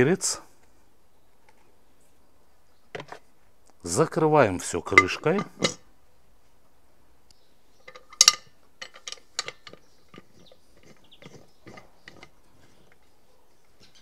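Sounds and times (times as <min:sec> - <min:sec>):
metal lid clacking shut: 0:04.9 - 0:05.8
small clicks and knocks: 0:07.8 - 0:14.0.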